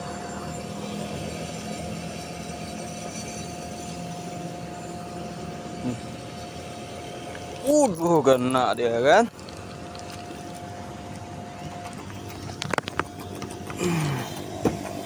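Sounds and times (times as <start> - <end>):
motor hum with thin whine: 0.0 - 15.0.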